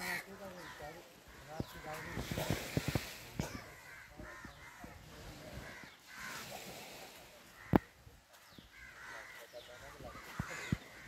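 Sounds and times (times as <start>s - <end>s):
crows cawing: 0.0s - 5.0s, 5.6s - 6.4s, 7.5s - 8.0s, 8.6s - 11.0s.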